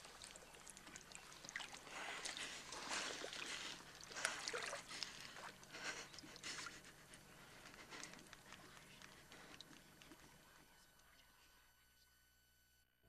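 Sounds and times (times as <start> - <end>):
lake water lapping and splashing: 0.0 - 10.2.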